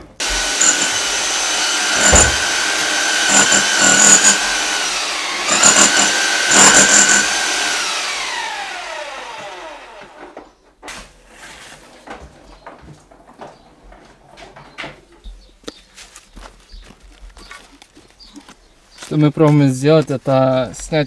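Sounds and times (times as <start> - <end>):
hammer drill motor whining: 0.2 - 10.5.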